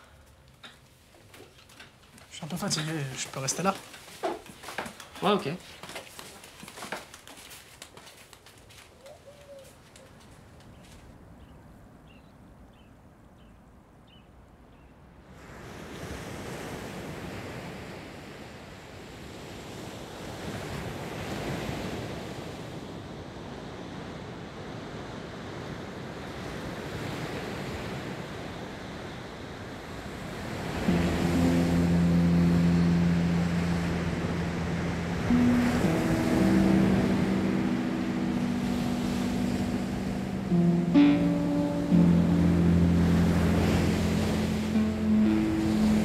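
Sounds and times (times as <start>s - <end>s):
wind: 0.0s - 46.0s
surf: 30.4s - 46.0s.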